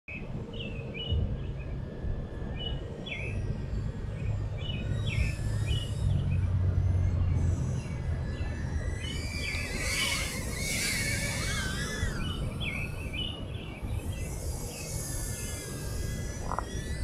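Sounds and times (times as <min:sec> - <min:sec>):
birds chirping: 0:02.4 - 0:17.0.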